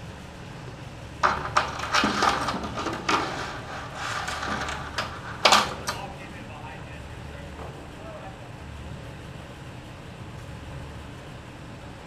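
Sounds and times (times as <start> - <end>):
clattering noise: 1.2 - 6.0.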